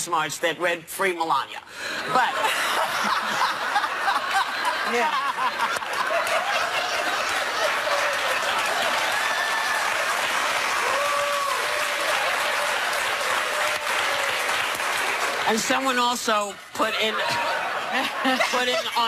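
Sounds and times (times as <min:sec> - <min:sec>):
audience applauding: 0:03.0 - 0:16.4.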